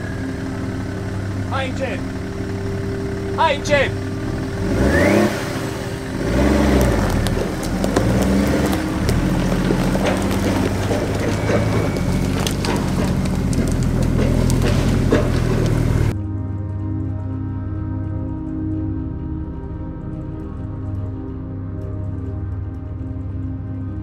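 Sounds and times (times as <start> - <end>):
truck engine revving: 0.0 - 16.2
sharp clicks and cracks: 6.4 - 16.2.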